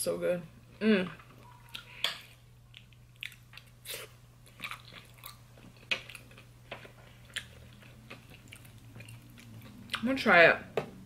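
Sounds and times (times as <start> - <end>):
person chewing food: 1.4 - 10.1.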